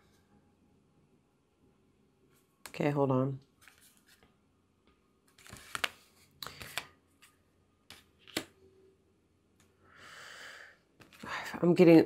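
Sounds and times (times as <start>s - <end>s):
cards rustling and tapping: 5.3s - 8.6s, 11.0s - 11.3s.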